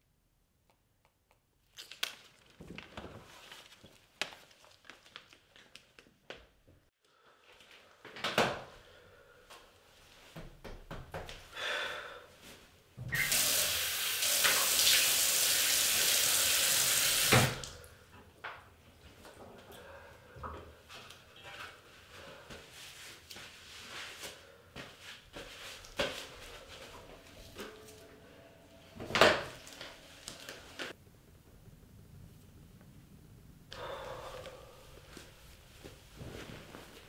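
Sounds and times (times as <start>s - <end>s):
tap water running into sink: 13.1s - 17.8s.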